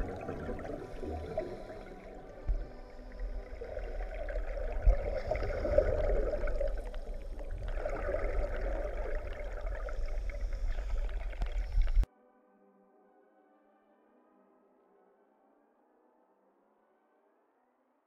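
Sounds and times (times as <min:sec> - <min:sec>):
low underwater rumble: 0:00.0 - 0:12.1
underwater water rushing and bubbling: 0:00.0 - 0:12.1.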